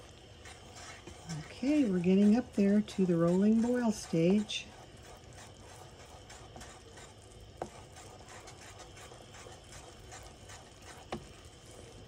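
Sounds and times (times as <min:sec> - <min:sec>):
jam bubbling in a pot: 0:00.0 - 0:12.0.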